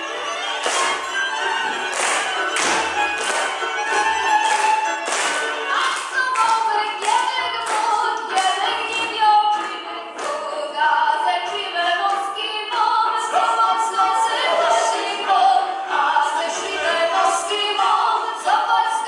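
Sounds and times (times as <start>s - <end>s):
hands clapping on the beat: 0.4s - 10.6s, 12.0s - 12.9s, 17.7s - 18.0s
group singing folk song: 0.7s - 19.0s.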